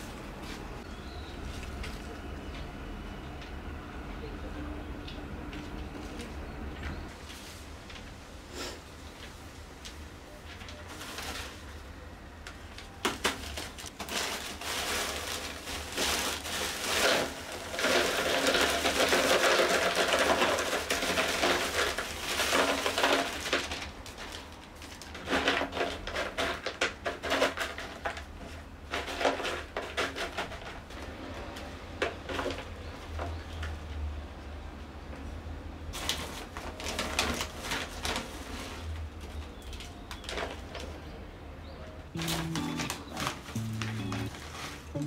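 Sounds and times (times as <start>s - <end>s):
plastic bag crinkling: 10.4s - 11.8s, 13.0s - 30.3s, 35.9s - 41.0s, 42.2s - 45.0s.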